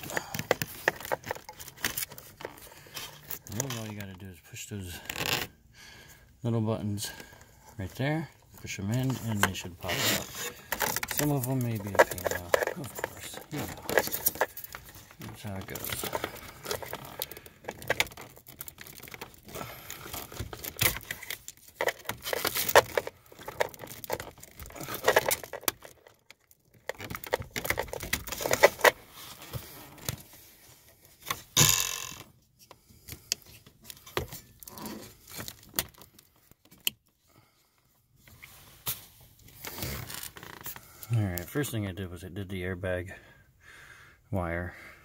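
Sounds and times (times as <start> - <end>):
loose wires rattling: 7.8 - 30.2
plastic connectors clicking: 10.7 - 29.0.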